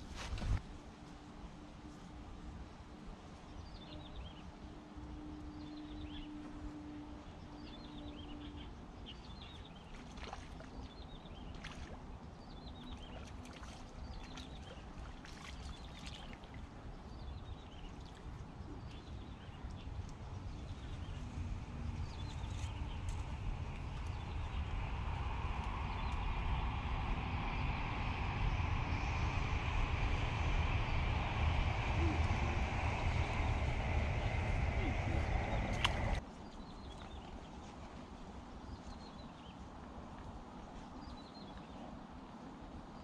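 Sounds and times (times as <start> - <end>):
low hum: 0.0 - 37.8
low rumble: 18.4 - 36.2.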